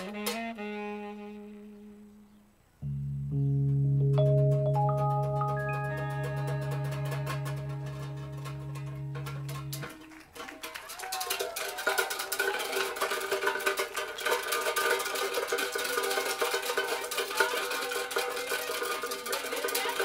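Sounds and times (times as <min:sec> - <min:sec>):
live band keyboards and drums: 0:04.0 - 0:10.3.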